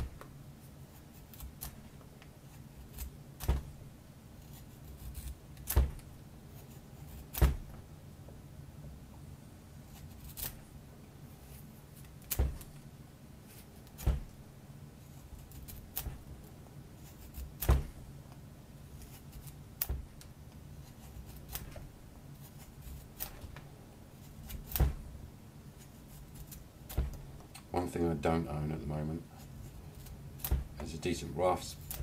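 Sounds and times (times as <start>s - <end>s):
knife shaving wood: 0.0s - 3.5s, 4.4s - 7.5s, 9.9s - 10.6s, 15.0s - 16.3s, 17.0s - 17.7s, 18.9s - 23.5s, 24.1s - 24.8s, 25.8s - 27.2s, 29.2s - 32.0s
low steady hum: 0.0s - 32.0s.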